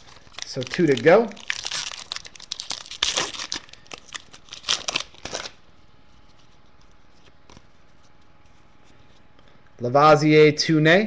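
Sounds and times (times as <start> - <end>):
foil wrapper crinkling: 0.0 - 5.6.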